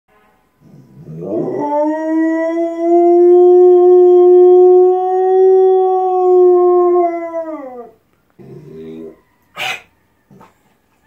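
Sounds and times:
dog howling: 0.9 - 8.0.

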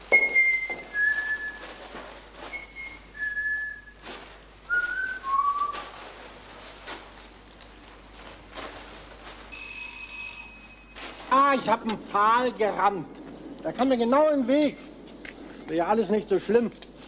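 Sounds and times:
person whistling a tune: 0.1 - 1.6, 2.5 - 4.0, 4.7 - 5.8.

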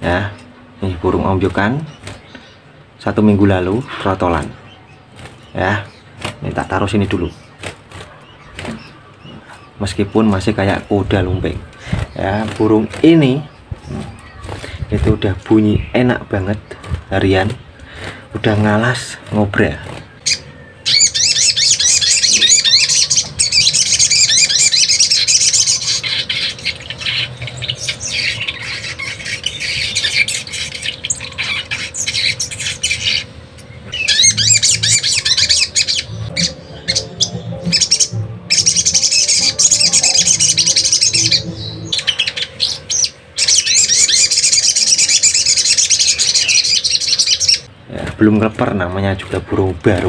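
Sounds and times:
bird singing chattering trills: 0.0 - 50.0.

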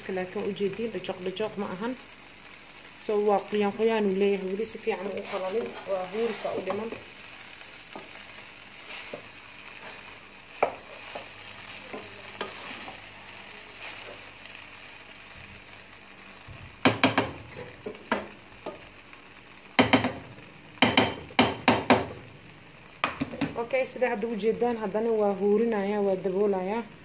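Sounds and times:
rice sizzling in a pot: 0.0 - 27.0
spoon stirring and scraping: 8.8 - 13.1
spoon knocking against pot: 16.8 - 17.4, 19.8 - 20.2, 20.8 - 22.1.

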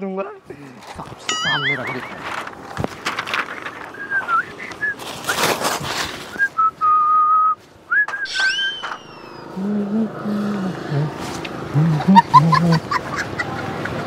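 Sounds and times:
brief rustle: 5.0 - 6.4
person whistling a tune: 6.4 - 10.0.

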